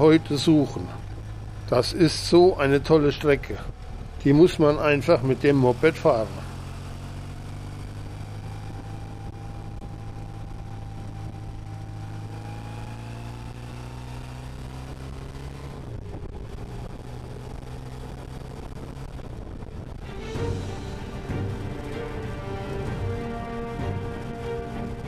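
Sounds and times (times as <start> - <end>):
motorcycle engine running: 0.0 - 25.0
wind rush: 15.6 - 25.0.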